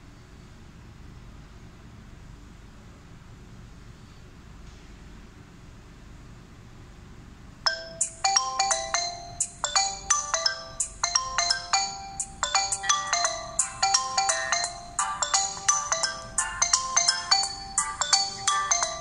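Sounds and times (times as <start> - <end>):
smartphone ringtone chiming: 7.7 - 19.0.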